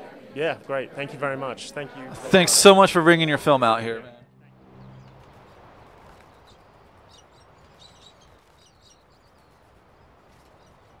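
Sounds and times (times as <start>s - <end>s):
faint background noise: 0.0s - 11.0s
faint bird chirps: 6.0s - 11.0s.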